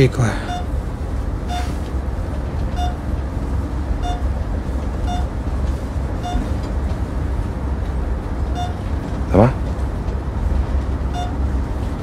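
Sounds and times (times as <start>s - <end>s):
engine rumble: 0.0s - 12.0s
patient monitor beeping: 0.3s - 0.8s, 1.4s - 1.8s, 2.6s - 3.1s, 4.0s - 4.3s, 5.0s - 5.4s, 6.2s - 6.6s, 8.5s - 8.9s, 11.1s - 11.6s.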